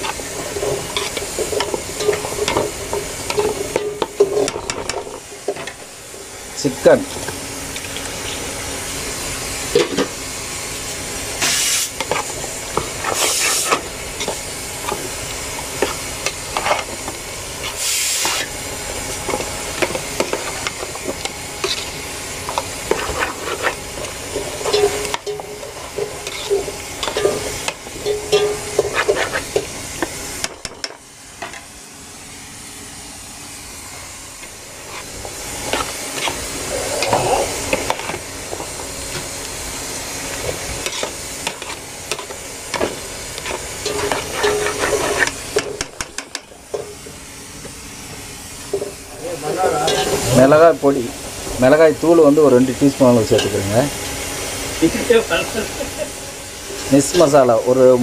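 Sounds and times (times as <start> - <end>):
hiss of cooking: 0.0 - 58.0
metal spoon scraping in pot: 24.4 - 29.6, 43.4 - 45.3.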